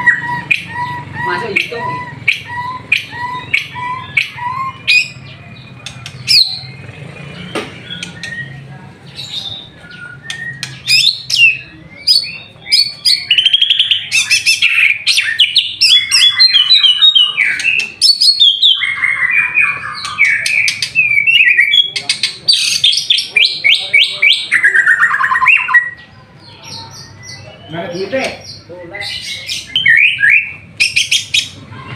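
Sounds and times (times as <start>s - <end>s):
songbird trilling: 0.0s - 31.6s.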